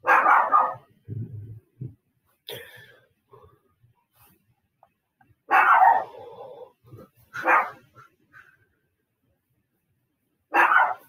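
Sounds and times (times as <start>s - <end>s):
dog barking: 0.0s - 0.9s, 5.5s - 6.3s, 7.3s - 7.9s, 10.5s - 11.0s.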